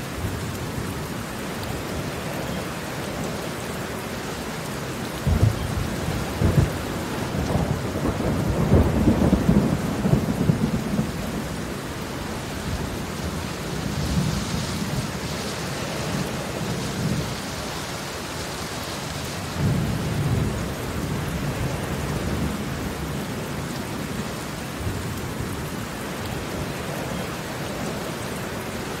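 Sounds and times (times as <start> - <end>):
heavy rain on pavement: 0.0 - 29.0.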